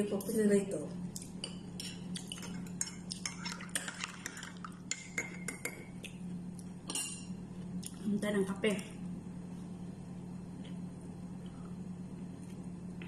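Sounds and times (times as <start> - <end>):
spoon clinking against dishes: 6.9 - 7.4.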